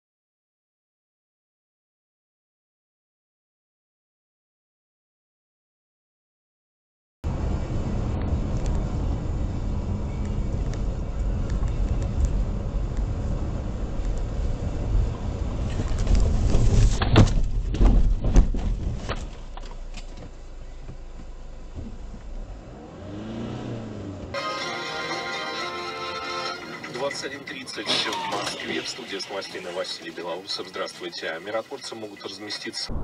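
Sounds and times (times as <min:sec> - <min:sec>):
car running noise: 0:07.2 - 0:24.4
car crash bangs and crunches: 0:15.6 - 0:20.4.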